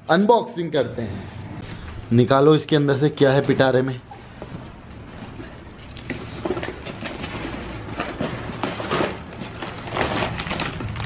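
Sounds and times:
rummaging in cardboard box: 0:03.2 - 0:11.0.

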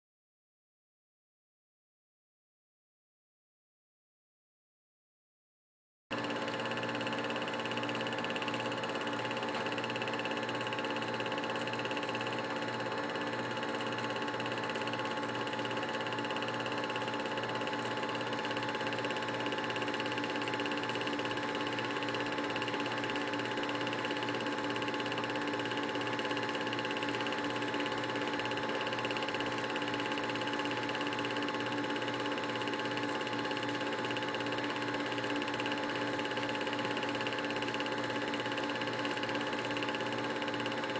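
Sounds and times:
film projector whirring: 0:06.1 - 0:40.9.

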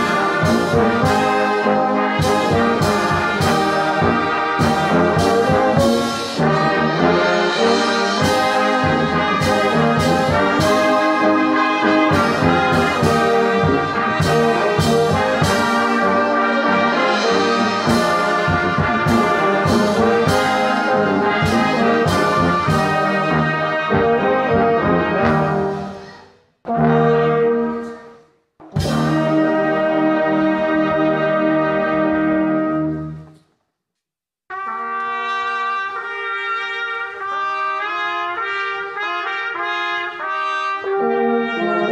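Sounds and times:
brass band playing a hymn: 0:00.0 - 0:33.4, 0:34.5 - 0:41.9.

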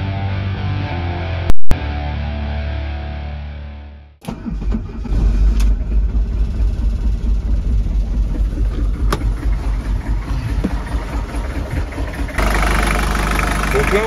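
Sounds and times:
diesel engine idling: 0:05.7 - 0:14.0.

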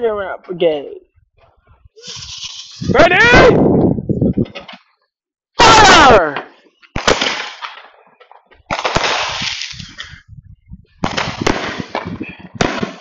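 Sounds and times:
fireworks bangs: 0:06.9 - 0:08.0, 0:08.6 - 0:10.0, 0:11.0 - 0:13.0
fireworks crackling: 0:06.9 - 0:08.0, 0:08.7 - 0:10.2, 0:11.0 - 0:13.0.

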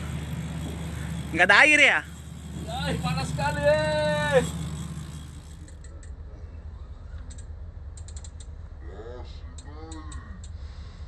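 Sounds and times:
fishing reel clicking: 0:00.0 - 0:06.0
steady low hum: 0:00.0 - 0:11.0.

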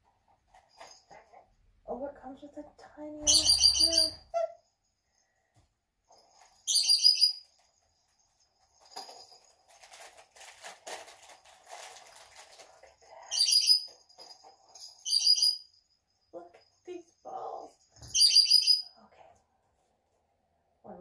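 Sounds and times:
bird chirping: 0:03.2 - 0:04.6, 0:06.6 - 0:07.5, 0:15.0 - 0:15.7, 0:18.0 - 0:19.0
soft rustling of packaging: 0:07.5 - 0:14.8.

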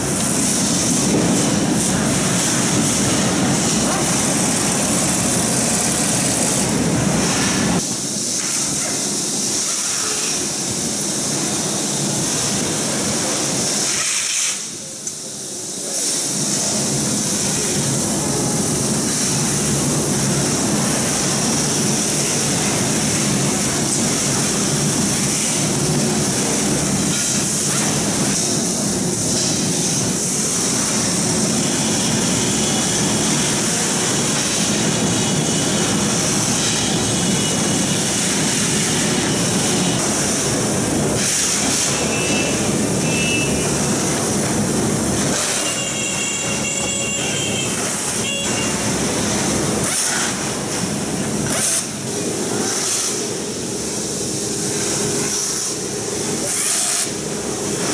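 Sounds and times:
assembly line running: 0:00.0 - 0:07.8
industrial ventilation fans: 0:00.0 - 0:57.9.

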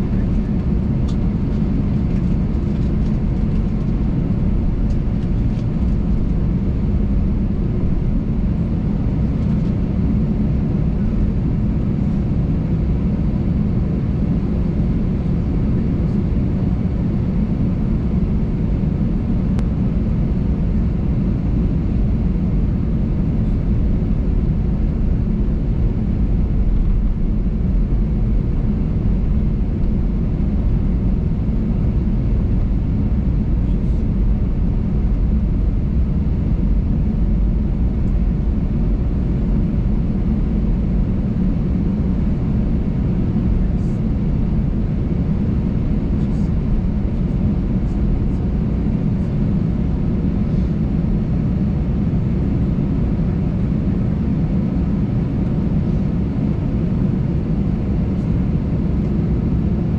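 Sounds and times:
low aircraft cabin rumble: 0:00.0 - 0:59.9.

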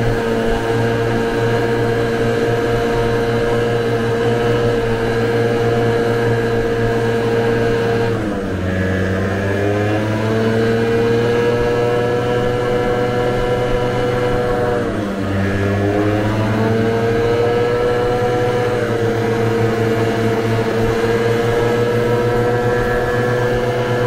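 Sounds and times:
scooter engine running: 0:00.0 - 0:24.0.

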